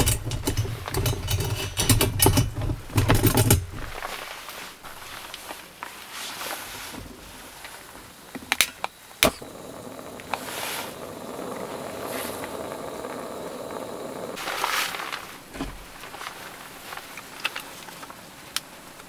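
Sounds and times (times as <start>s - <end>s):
gas burner hissing: 9.0s - 17.0s
lighter clicking: 9.2s - 14.4s.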